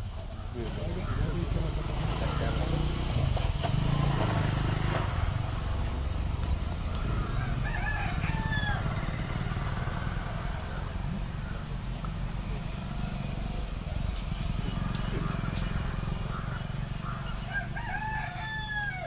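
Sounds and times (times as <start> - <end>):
rooster crowing: 7.2 - 10.8, 17.2 - 19.0.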